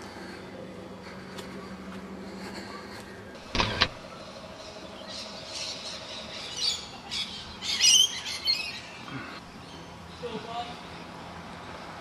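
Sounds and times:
birds squawking: 1.5 - 10.5.

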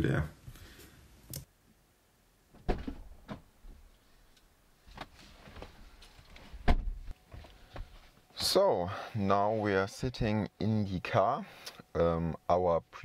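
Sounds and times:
rustling: 2.6 - 8.3.

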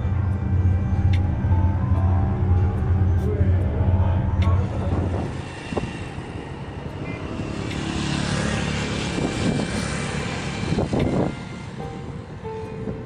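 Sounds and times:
small motorcycle engine passing: 5.5 - 12.0.

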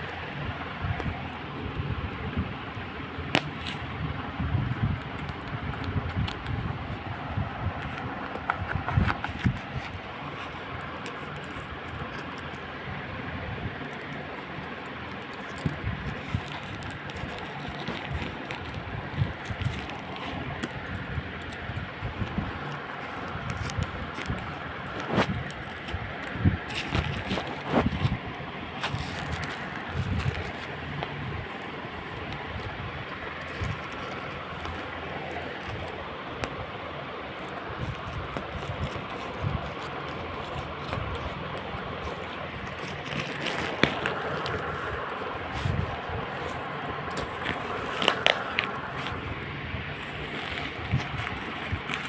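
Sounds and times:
steady background hum: 0.0 - 52.0
plastic wrapping crinkling: 13.7 - 52.0.

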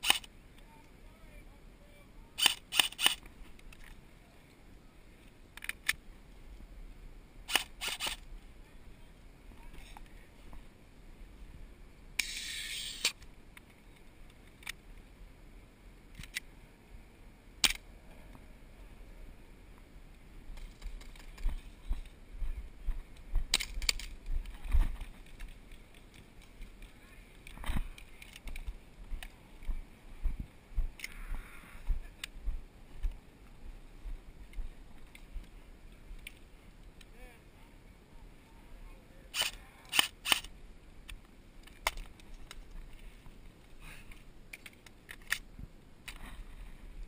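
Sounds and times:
airsoft rifle shots clicking: 0.0 - 0.3, 2.4 - 3.3, 39.4 - 40.5.

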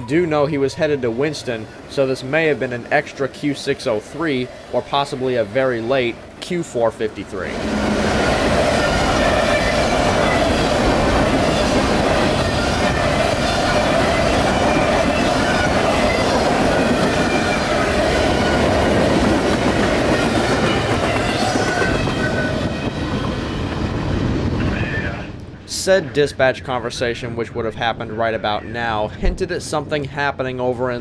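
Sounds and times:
freight train wheels clattering: 7.5 - 24.3.

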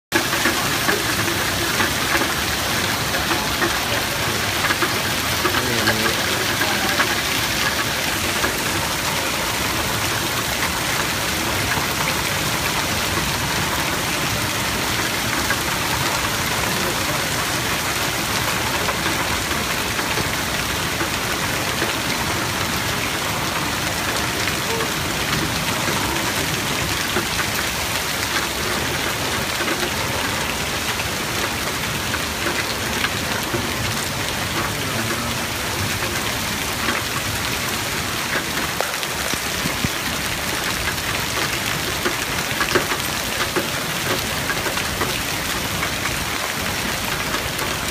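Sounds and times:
torrential rain and hail: 0.1 - 47.9.

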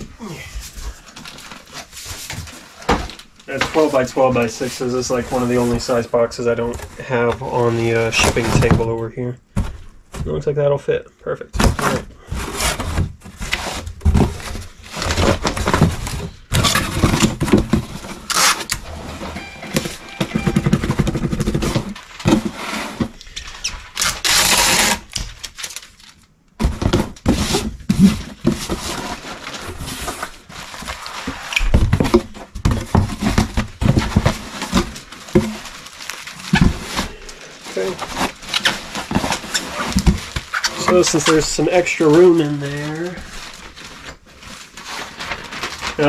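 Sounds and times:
bubble wrap rustling: 0.0 - 8.8, 12.4 - 26.3, 27.0 - 46.0
knocks and thumps in cardboard box: 9.5 - 10.4, 11.5 - 18.5, 19.2 - 23.2, 26.6 - 31.0, 31.6 - 35.8, 36.4 - 37.2, 37.8 - 40.9.

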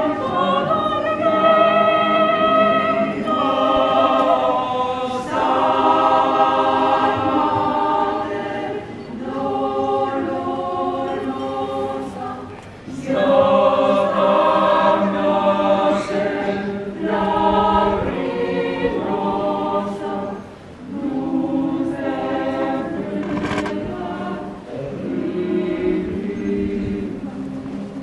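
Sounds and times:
choir singing a slow hymn: 0.0 - 28.0.

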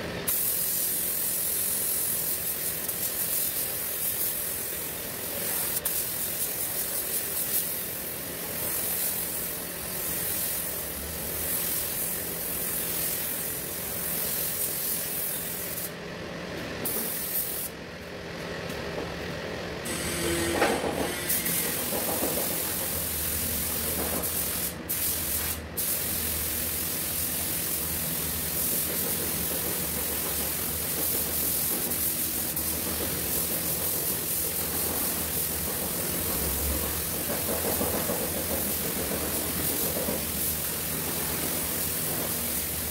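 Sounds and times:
paint spray gun hissing: 0.3 - 16.0, 16.8 - 17.7, 21.3 - 42.9.

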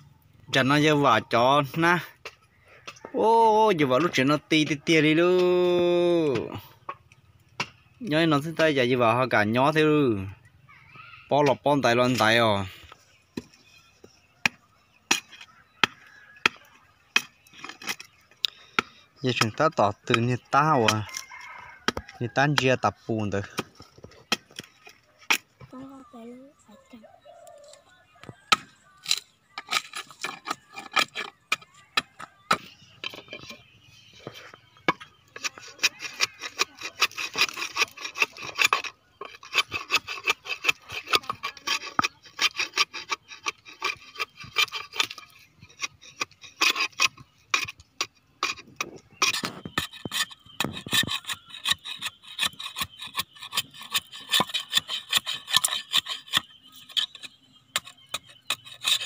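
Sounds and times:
knife scraping wooden board: 28.5 - 59.0.

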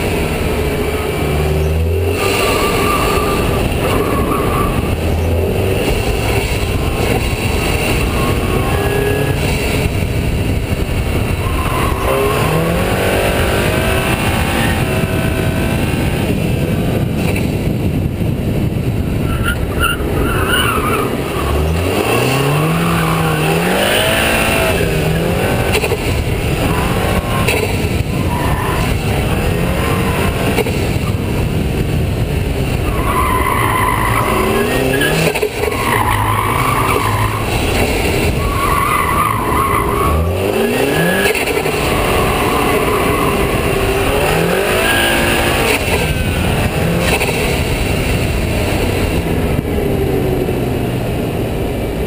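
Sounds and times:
car engine accelerating: 0.0 - 52.0
tyres squealing: 32.9 - 45.7.

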